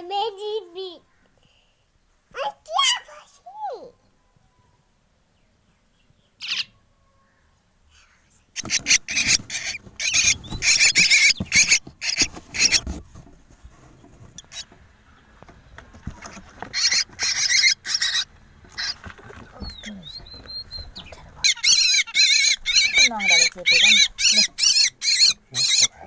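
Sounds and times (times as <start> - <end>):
nestlings begging calls: 6.3 - 6.8, 8.0 - 13.0, 14.3 - 26.0.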